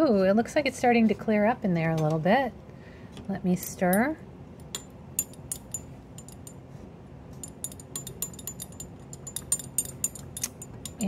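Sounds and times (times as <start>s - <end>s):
stirring rod clinking in glass tube: 4.7s - 6.6s, 7.4s - 11.0s.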